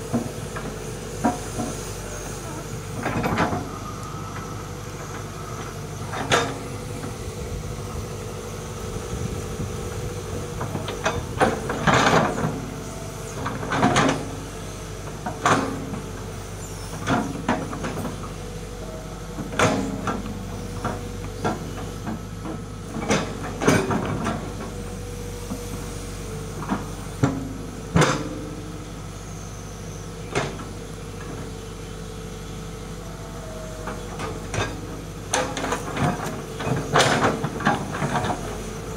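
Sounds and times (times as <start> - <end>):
excavator diesel engine running: 0.0 - 38.9
excavator bucket clanking: 10.5 - 12.7, 19.4 - 24.8, 33.8 - 38.9.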